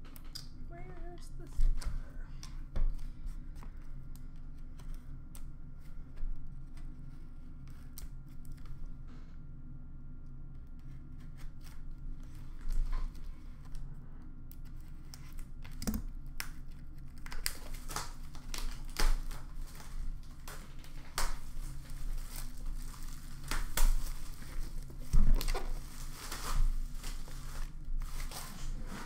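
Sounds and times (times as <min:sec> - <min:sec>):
plastic shrink wrap crinkling: 0:14.6 - 0:29.0.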